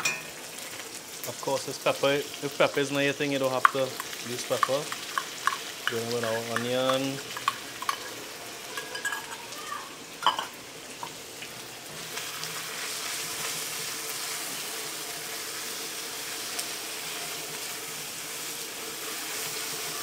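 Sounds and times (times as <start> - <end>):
onion sizzling in hot oil: 0.0 - 20.0
spatula stirring: 2.5 - 9.4.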